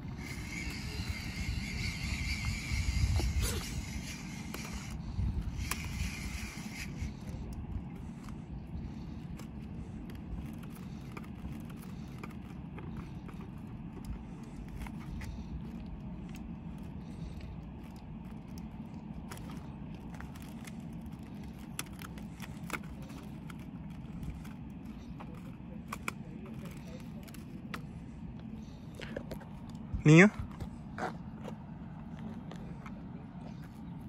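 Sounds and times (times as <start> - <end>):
tool clicks and scrapes: 0.0 - 8.4
wind rumbling on microphone: 0.0 - 34.0.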